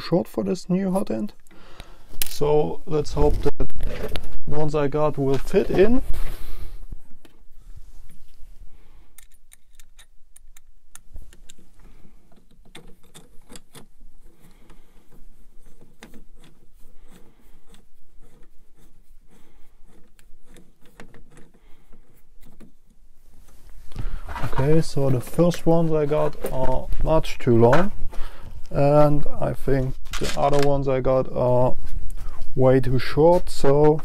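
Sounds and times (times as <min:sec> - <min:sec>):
small metal parts clicking: 0:09.2 - 0:11.7, 0:12.3 - 0:18.5.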